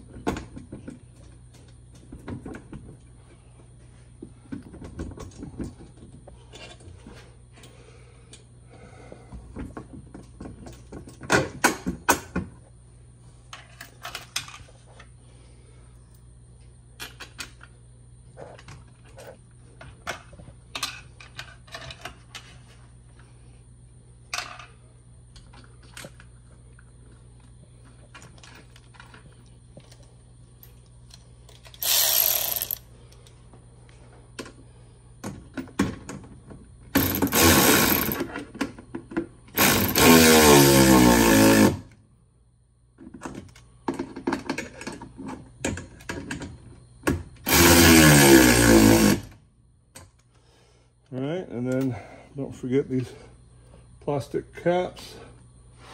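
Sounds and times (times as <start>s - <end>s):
cordless electric ratchet whirring: 31.8s - 32.8s, 37.0s - 38.3s, 39.6s - 41.9s, 47.5s - 49.3s.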